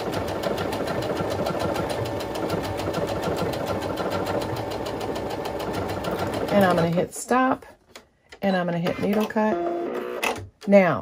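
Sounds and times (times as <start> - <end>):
sewing machine stitching: 0.0 - 7.0.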